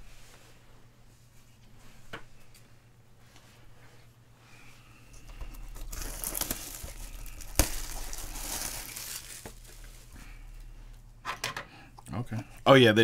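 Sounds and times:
plastic wrap crinkling and tearing: 5.4s - 10.2s.

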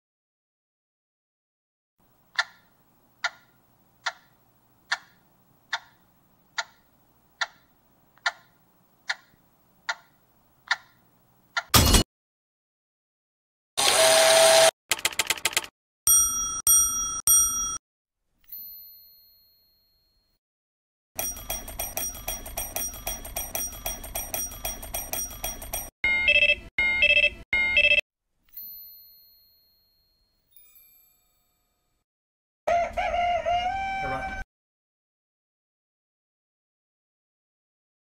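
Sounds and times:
alarm clock bell ringing: 16.1s - 17.8s, 21.2s - 28.0s
rooster crowing: 32.7s - 34.4s.

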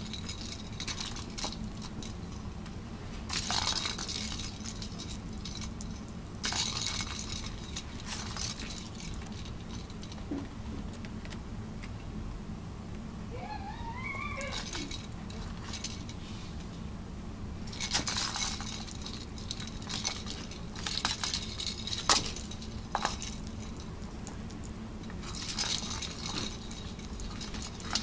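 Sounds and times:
steady low hum: 0.0s - 28.0s
cat toy ball rattling: 14.2s - 16.2s.

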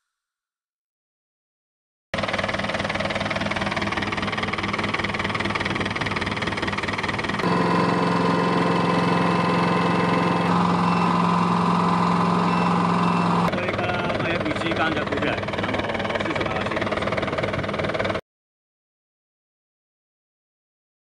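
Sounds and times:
boat engine idling: 2.2s - 18.2s.

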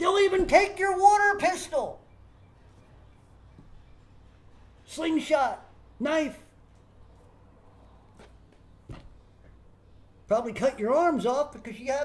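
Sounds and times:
steady low hum: 1.8s - 11.0s.

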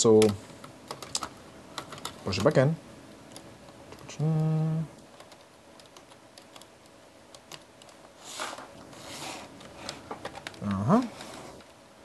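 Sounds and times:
person humming: 4.1s - 5.0s.

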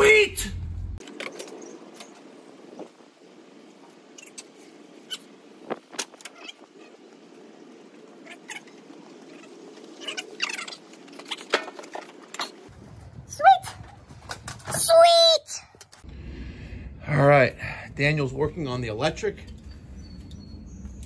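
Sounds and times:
low outdoor background hum: 0.0s - 21.0s.

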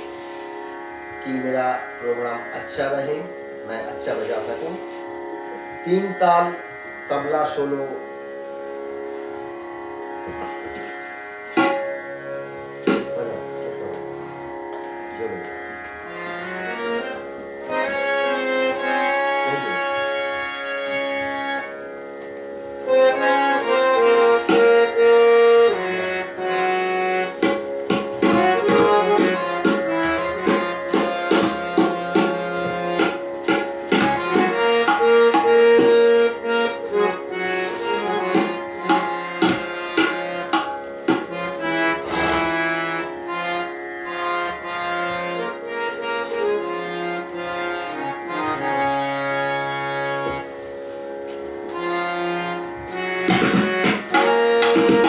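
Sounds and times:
harmonium melody: 0.0s - 55.0s
tabla strokes: 10.5s - 12.0s, 12.8s - 13.3s, 24.3s - 25.0s, 27.2s - 36.1s, 37.6s - 43.0s, 53.2s - 55.0s.

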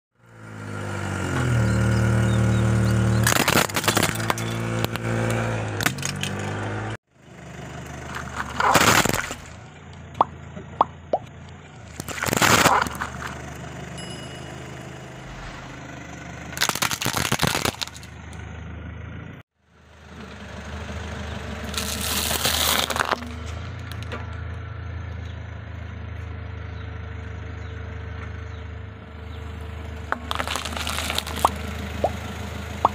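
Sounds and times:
car engine running: 0.2s - 32.9s
tyres crunching plastic toys: 3.1s - 6.6s, 8.0s - 13.6s, 16.5s - 18.2s, 21.6s - 24.2s, 30.1s - 32.2s.

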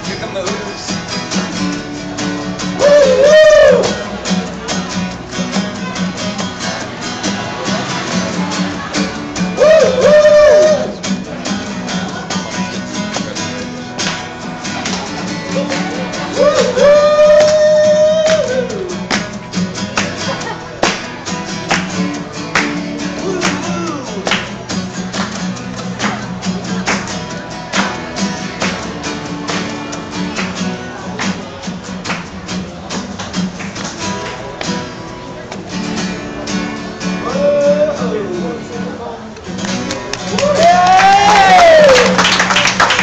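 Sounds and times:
acoustic guitars strumming: 0.0s - 43.0s
person singing: 15.4s - 18.9s.

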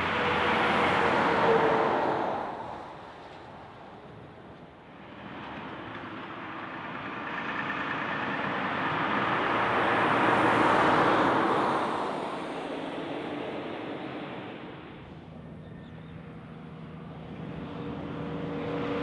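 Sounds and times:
truck driving past: 0.0s - 4.0s, 4.9s - 19.0s.

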